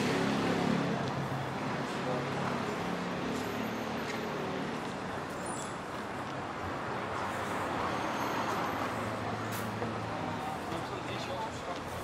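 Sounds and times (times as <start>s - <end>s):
passing vehicles hiss: 5.1s - 12.0s.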